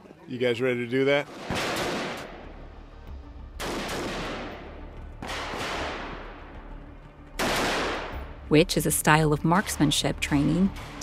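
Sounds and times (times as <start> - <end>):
echoing gunshots: 1.3 - 2.6, 3.6 - 8.4.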